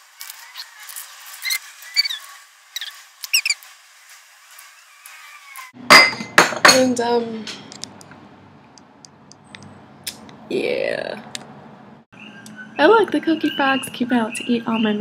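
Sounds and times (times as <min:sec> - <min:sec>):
spoon squeaking against glass: 0:01.4 - 0:03.6.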